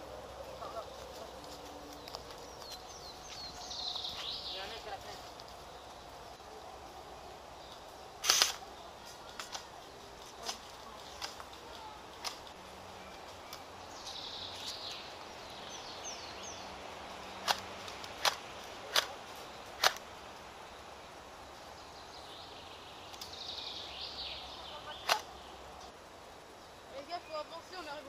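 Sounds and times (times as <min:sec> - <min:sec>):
birds chirping: 0:00.0 - 0:28.0
airsoft rifle shots: 0:08.2 - 0:08.6, 0:19.8 - 0:20.0.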